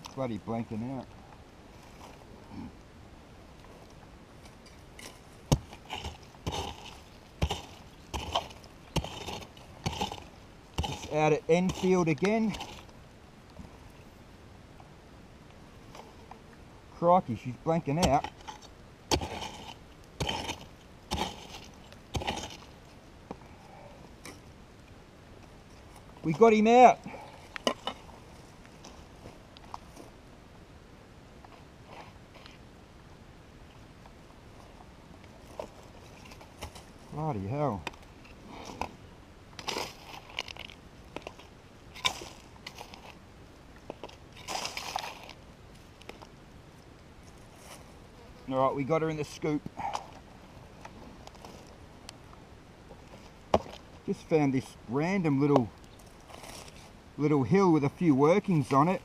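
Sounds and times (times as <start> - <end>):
soil crunching and scraping: 0.0 - 2.8, 3.5 - 14.2, 15.7 - 24.6, 25.4 - 30.2, 31.4 - 32.7, 34.5 - 59.0
pick striking hard ground: 5.0 - 12.9, 17.9 - 22.7.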